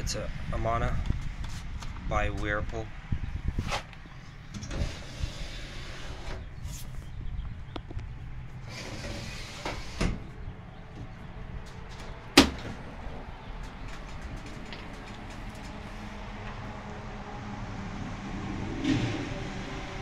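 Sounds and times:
drawer sliding on metal rails: 4.6s - 6.4s, 8.7s - 10.2s.

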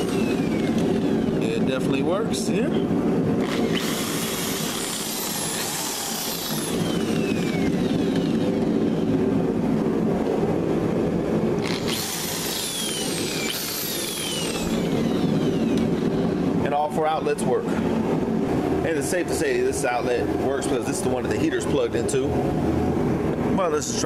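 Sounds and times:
electric drill whining: 0.0s - 1.4s, 3.4s - 9.1s, 11.6s - 16.4s
steady machine hum: 0.0s - 24.0s.

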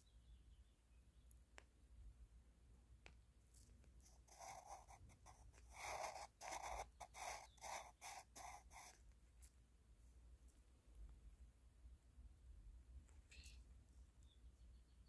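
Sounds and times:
pencil scratching on paper: 4.0s - 9.5s.

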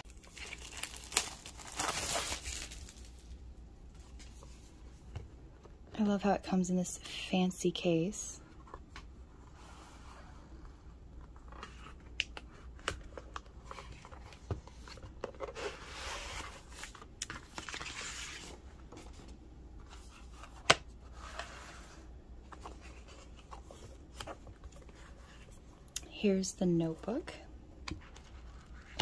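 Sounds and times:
paper and card rustling: 0.1s - 3.3s, 11.4s - 25.6s.

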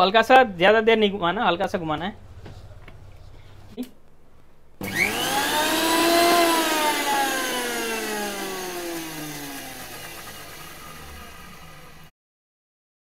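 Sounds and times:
mixer grinder motor whine: 4.8s - 12.1s.

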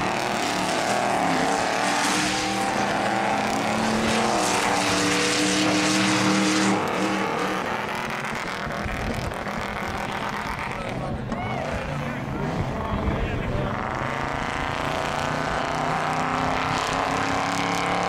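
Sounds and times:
buggy engine racing: 0.0s - 18.0s.

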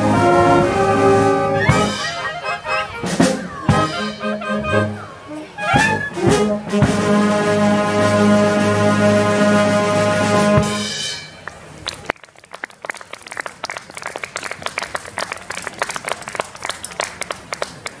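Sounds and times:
concert band playing: 0.0s - 11.7s
audience clapping: 11.4s - 18.0s.

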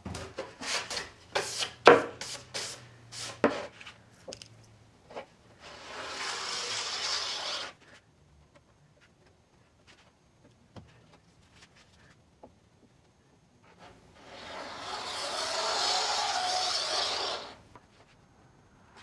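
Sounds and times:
rubbing strokes on wood: 0.6s - 3.7s, 14.2s - 17.6s.

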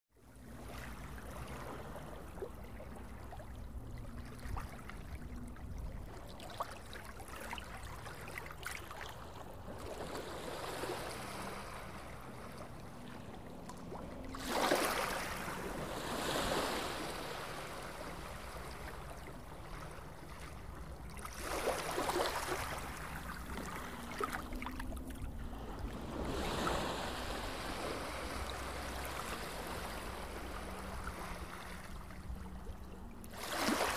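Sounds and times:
rushing splashing water: 33.3s - 33.9s.

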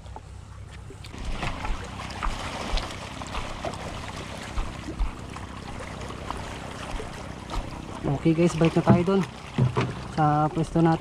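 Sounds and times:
bucket handling on stones: 7.0s - 10.3s.

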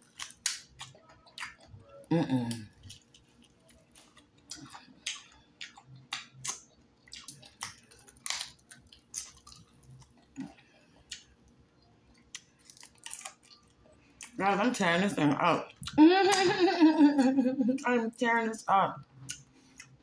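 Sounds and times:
crunchy food being chewed: 0.0s - 14.4s
faint low hum: 0.0s - 20.0s.

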